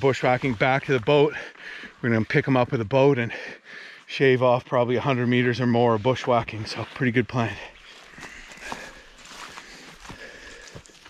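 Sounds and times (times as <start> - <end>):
footsteps through brush: 0.0 - 2.8, 4.8 - 11.0
branches brushing: 6.2 - 11.0.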